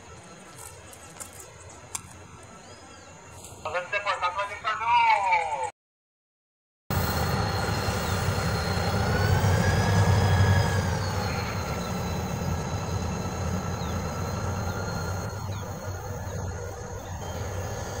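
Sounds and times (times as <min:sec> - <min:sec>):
locomotive rumble: 0:06.9 - 0:18.0
train wheel squeal: 0:06.9 - 0:18.0.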